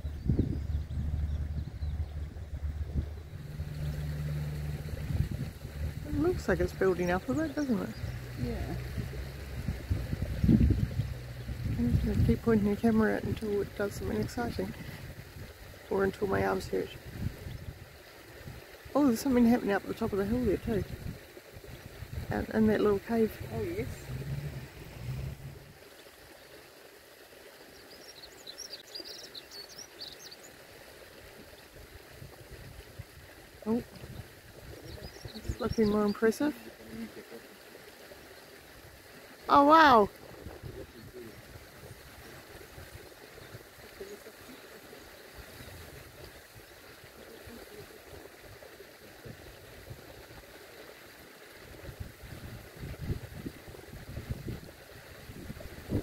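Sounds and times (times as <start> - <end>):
small bird chirping: 0.0 - 8.9
low rumble: 0.0 - 15.4, 21.8 - 25.8
geyser water rushing: 0.0 - 56.0.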